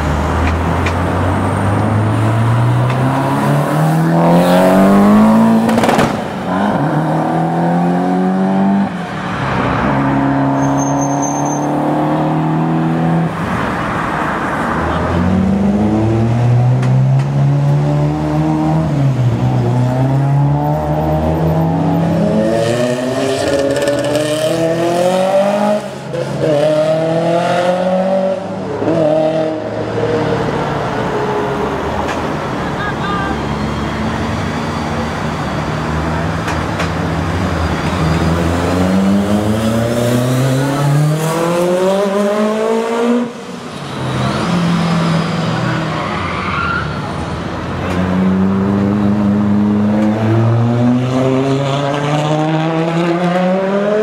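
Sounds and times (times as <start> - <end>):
rally car engines revving: 0.0 - 54.0
sharp cracks: 5.6 - 6.3.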